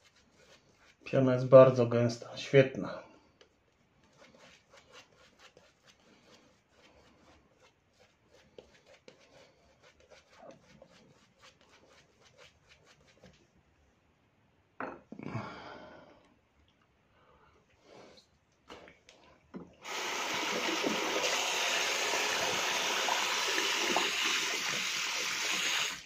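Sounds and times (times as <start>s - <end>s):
shaving brush lathering: 0.0s - 1.1s, 4.0s - 13.4s, 19.8s - 26.0s.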